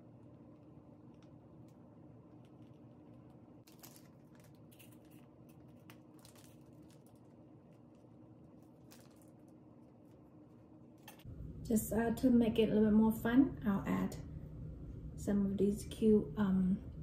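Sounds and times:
low room hum: 0.0s - 17.0s
plastic piping bag crinkling: 1.0s - 10.7s.

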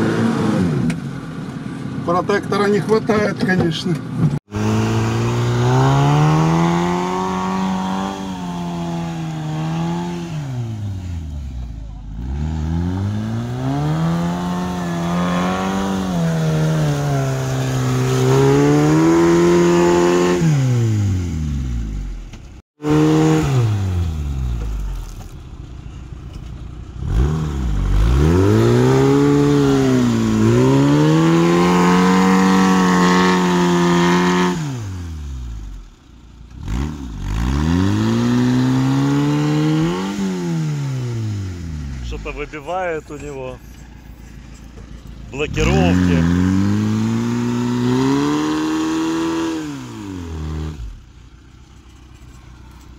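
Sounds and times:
car engine revving hard: 4.4s - 22.2s, 22.8s - 24.8s, 27.0s - 35.8s, 36.5s - 43.2s, 45.4s - 51.2s.

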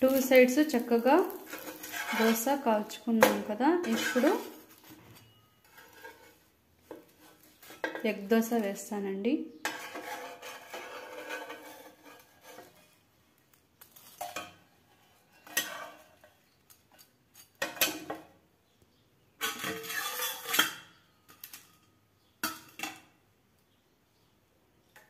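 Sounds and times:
spatula scraping metal pan: 0.0s - 8.8s, 9.6s - 13.0s, 14.0s - 16.4s, 19.4s - 21.7s.

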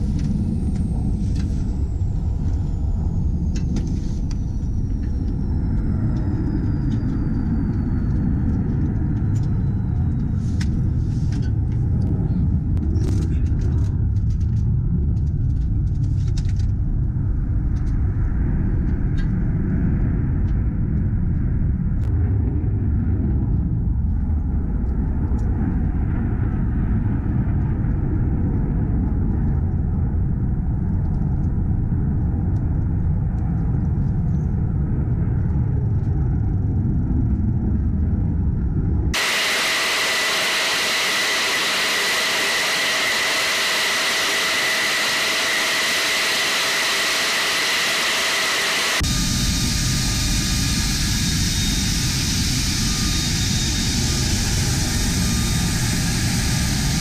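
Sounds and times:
jet engines whining: 0.0s - 13.6s, 39.1s - 57.0s
low rumble: 0.0s - 57.0s.

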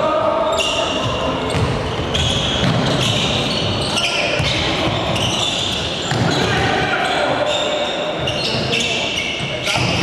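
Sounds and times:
sneakers squeaking on wooden floor: 0.5s - 10.0s
basketball bouncing: 1.5s - 1.8s.

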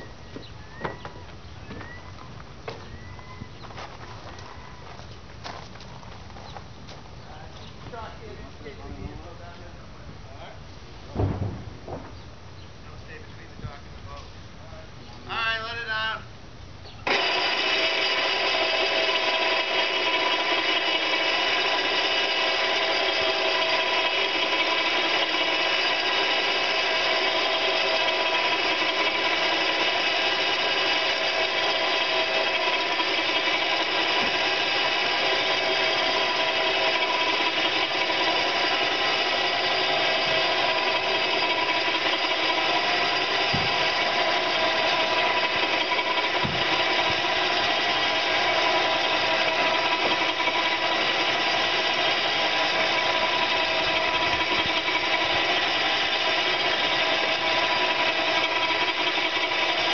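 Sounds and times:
winch motor running under load: 0.0s - 9.7s, 17.0s - 59.9s
low knocks: 11.1s - 12.3s, 46.4s - 47.2s.

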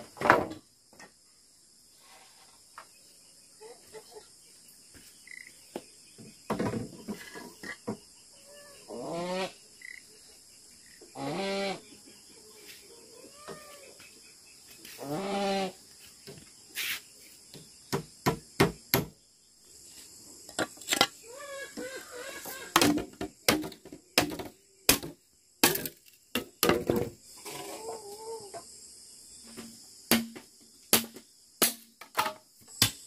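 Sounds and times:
high insect drone: 0.0s - 33.0s
animal cries: 8.4s - 9.6s, 11.2s - 11.8s, 13.1s - 14.0s, 15.0s - 15.8s, 21.3s - 22.7s
sharp knocks: 17.9s - 19.2s, 29.6s - 33.0s.

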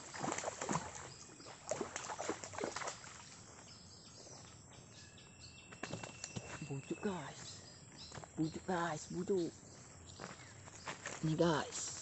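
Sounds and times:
crunching in dry leaves: 9.7s - 12.0s.

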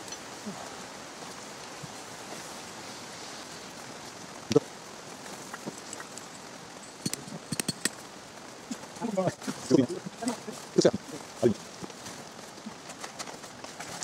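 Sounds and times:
outdoor background hiss: 0.0s - 14.0s.

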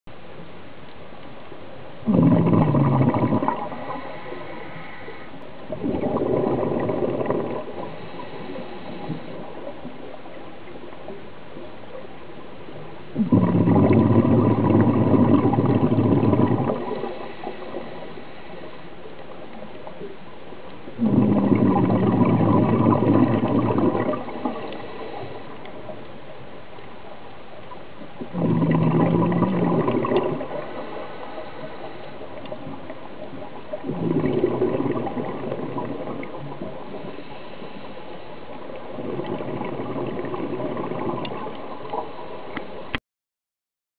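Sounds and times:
steady underwater hiss: 0.1s - 43.0s
exhaled breath bubbling from regulator: 2.0s - 10.3s, 13.2s - 18.9s, 21.0s - 26.0s, 28.2s - 42.9s.

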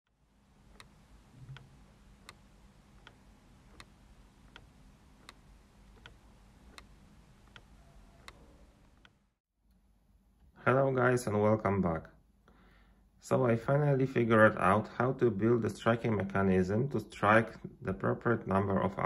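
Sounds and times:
clock ticking: 0.7s - 9.2s.

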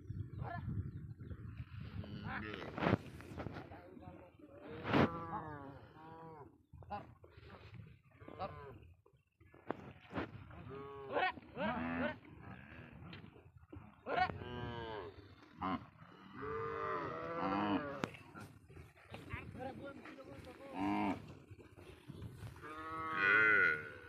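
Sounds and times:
cows mooing: 14.3s - 18.2s, 20.7s - 21.4s, 22.6s - 24.0s.

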